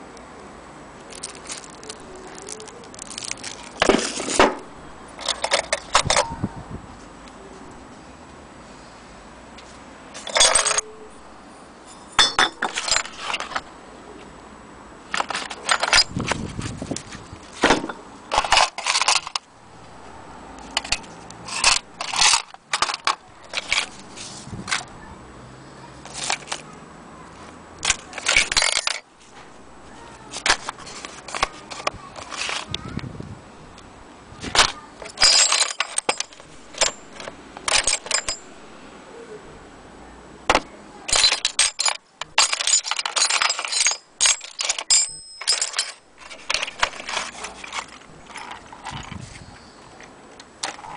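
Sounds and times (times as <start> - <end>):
handling noise: 1.0 - 7.9, 9.6 - 14.3, 15.0 - 25.1, 26.0 - 33.8, 34.4 - 38.9, 40.4 - 50.9
metal tools clinking: 1.1 - 6.3, 10.2 - 13.7, 15.1 - 16.7, 17.6 - 20.0, 20.6 - 24.8, 26.0 - 26.6, 27.8 - 32.7, 34.5 - 38.6, 40.5 - 49.8.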